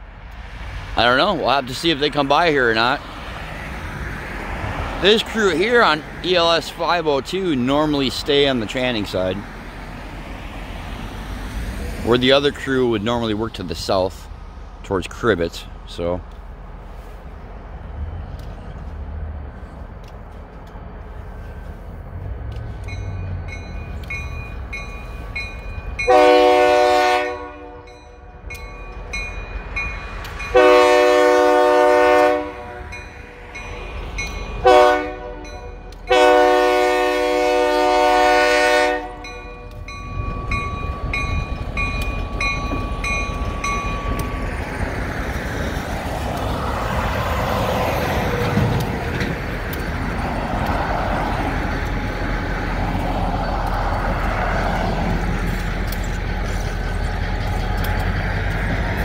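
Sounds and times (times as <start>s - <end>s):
passing truck road noise: 0.0s - 59.0s
locomotive air horn blasts: 26.0s - 28.0s, 30.5s - 33.6s, 34.6s - 39.7s
bell ringing: 39.2s - 44.6s.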